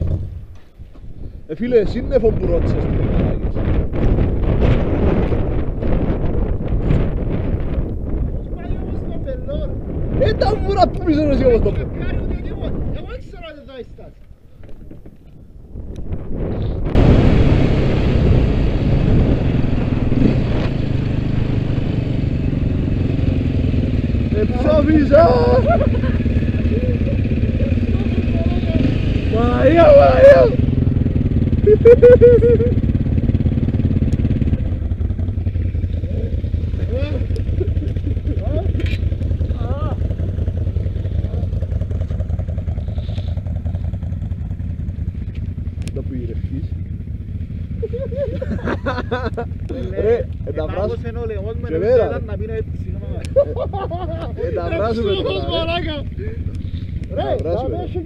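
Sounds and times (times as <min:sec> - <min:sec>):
motorcycle engine running: 0:14.8 - 0:58.0.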